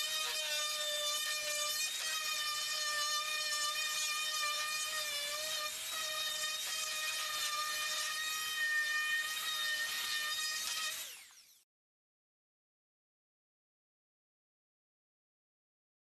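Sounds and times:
orbital sander on wood: 0.0 - 11.6.

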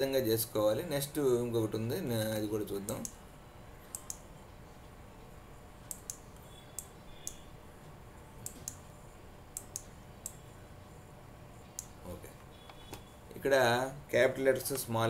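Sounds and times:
computer mouse clicks: 3.9 - 4.2, 5.9 - 7.4, 8.4 - 8.8, 9.5 - 10.4.

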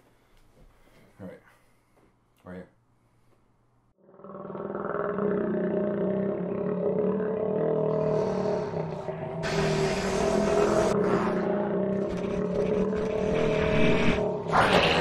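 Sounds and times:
loud hiss: 9.4 - 10.9.

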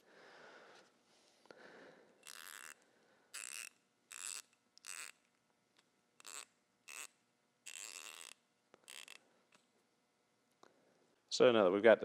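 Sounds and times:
ratchet clicking: 2.2 - 2.8, 3.4 - 5.2, 6.2 - 9.2.

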